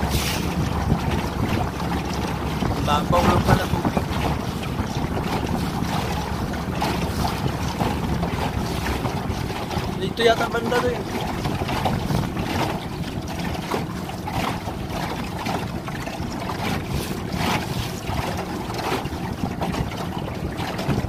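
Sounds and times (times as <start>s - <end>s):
water slapping against boat hull: 0.0s - 21.0s
wind buffeting microphone: 0.0s - 21.0s.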